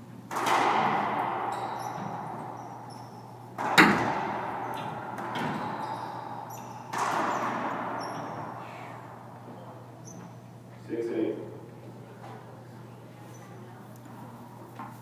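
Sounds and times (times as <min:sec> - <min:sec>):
racquetball cracks with echo: 0:00.3 - 0:10.1
sneaker squeaks on hardwood: 0:01.5 - 0:03.4, 0:04.7 - 0:08.8.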